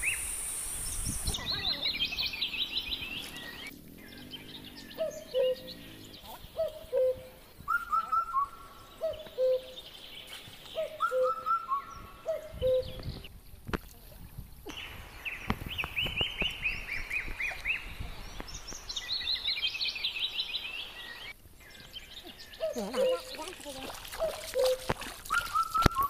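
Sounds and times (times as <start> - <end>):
whistled bird phrases: 0.0 - 9.9, 10.7 - 13.3, 15.7 - 26.0
high bird chirps: 0.0 - 13.3, 14.7 - 26.0.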